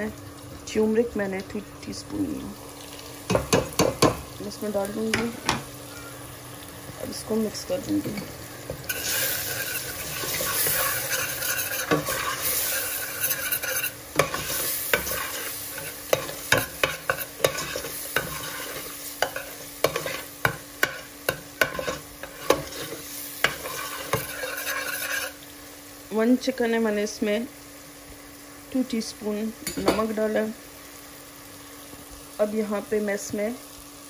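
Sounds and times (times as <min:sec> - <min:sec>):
spices sizzling in oil: 0:00.0 - 0:34.0.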